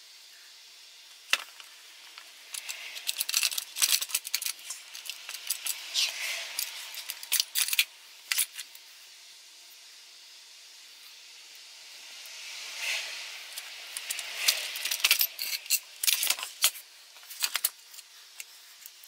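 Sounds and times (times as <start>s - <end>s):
metal parts clinking and scraping: 1.3s - 8.8s, 13.5s - 19.0s.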